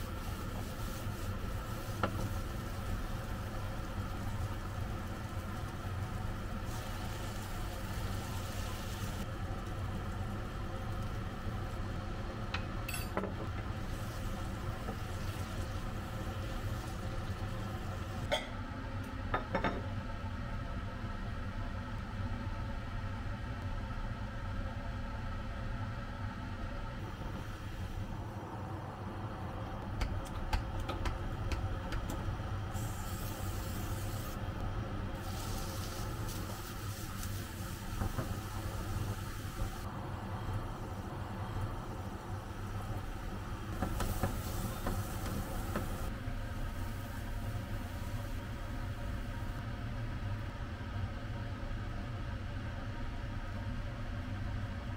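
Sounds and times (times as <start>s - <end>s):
food cooking in a pan: 0.0s - 18.3s, 30.0s - 50.4s
low mechanical hum: 0.0s - 54.9s.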